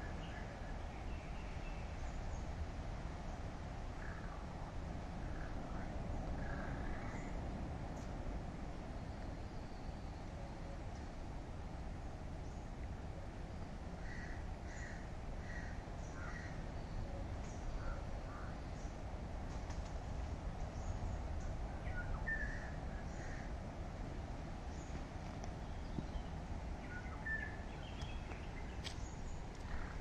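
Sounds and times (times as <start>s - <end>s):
low outdoor rumble: 0.0s - 30.0s
birds calling: 24.7s - 30.0s.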